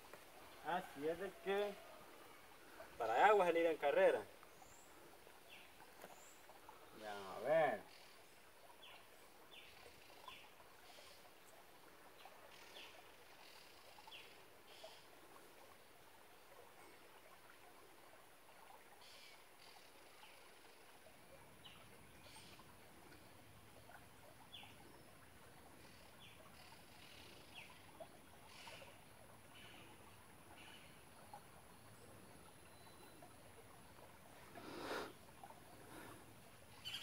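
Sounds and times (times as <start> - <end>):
even hiss: 34.4 - 35.2.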